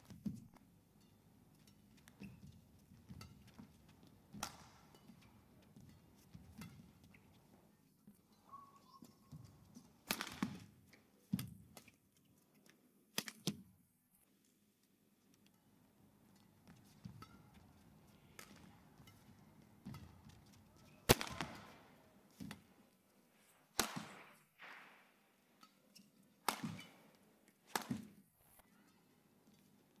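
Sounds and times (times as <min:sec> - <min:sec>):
racket smacking shuttlecock: 0:01.6 - 0:07.3, 0:10.1 - 0:10.7, 0:18.3 - 0:20.5, 0:23.8 - 0:25.0, 0:25.6 - 0:28.2.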